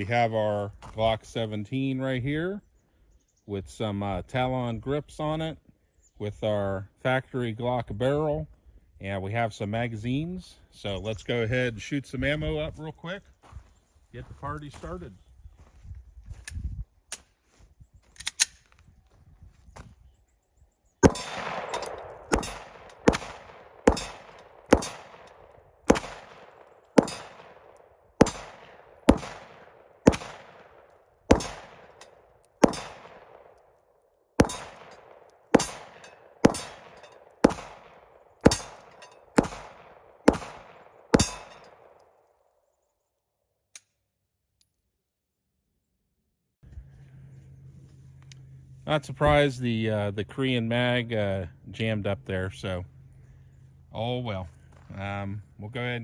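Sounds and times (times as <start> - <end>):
steel target ringing: 21.0 - 23.1, 23.9 - 25.1, 27.0 - 27.4, 34.4 - 35.0, 35.6 - 37.3, 38.5 - 39.3, 41.2 - 41.7
pistol shots: 21.0 - 33.8, 34.4 - 42.1.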